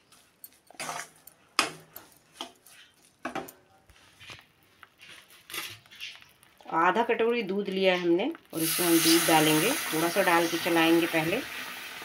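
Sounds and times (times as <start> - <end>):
steel spoon scraping a pan: 0.6 - 3.0.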